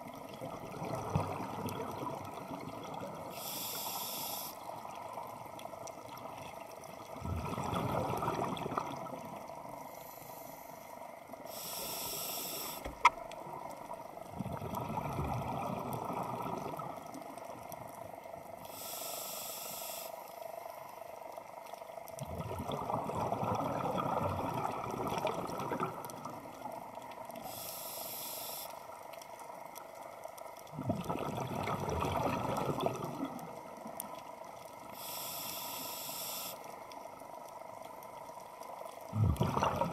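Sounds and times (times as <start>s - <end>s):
bubbling exhaled bubbles: 0.0s - 3.4s, 7.0s - 9.6s, 14.3s - 17.4s, 22.2s - 26.9s, 30.7s - 33.9s, 39.0s - 39.9s
scuba regulator breathing: 3.3s - 4.6s, 9.8s - 13.1s, 18.7s - 20.3s, 27.4s - 28.8s, 34.9s - 36.6s.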